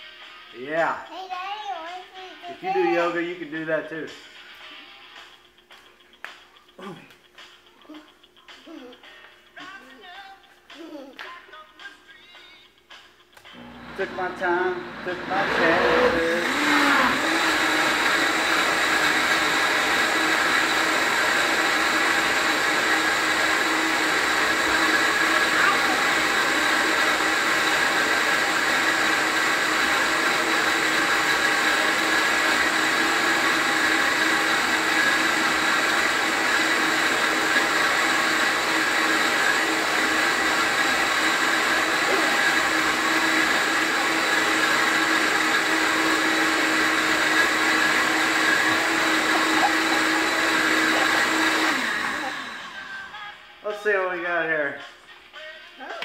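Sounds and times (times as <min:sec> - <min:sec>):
blender motor running: 0:13.6 - 0:53.1.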